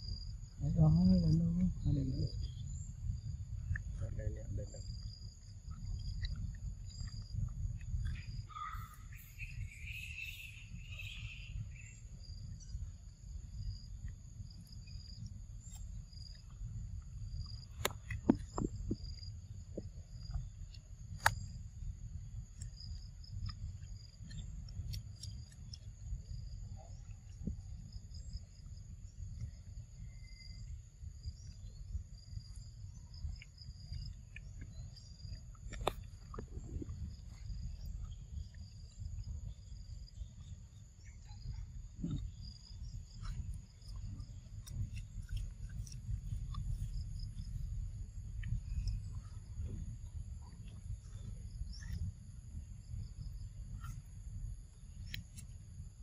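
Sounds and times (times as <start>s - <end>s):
high-pitched insect trilling: 0.0s - 16.6s
low rumble: 0.0s - 56.0s.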